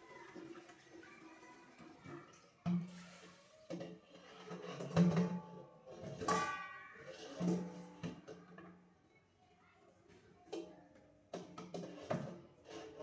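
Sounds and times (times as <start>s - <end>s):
running tap water: 0.0s - 3.5s.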